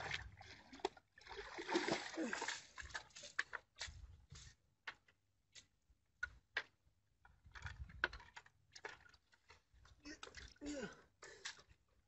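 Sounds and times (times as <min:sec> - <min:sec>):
wooden pole clicking and knocking: 0:04.8 - 0:09.6.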